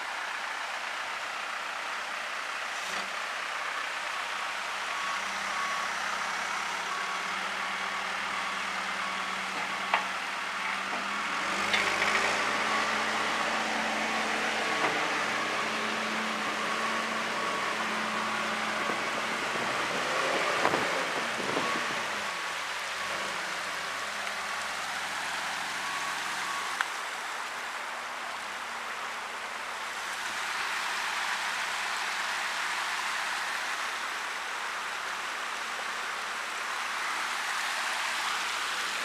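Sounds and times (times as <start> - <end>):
diesel engine working: 0.0 - 39.0
water rushing across ground: 4.6 - 39.0.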